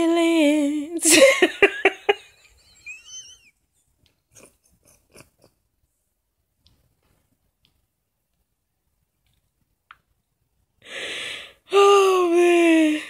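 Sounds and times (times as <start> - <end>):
woman laughing: 1.0 - 3.5, 4.3 - 5.6
faint breaths: 10.8 - 11.7.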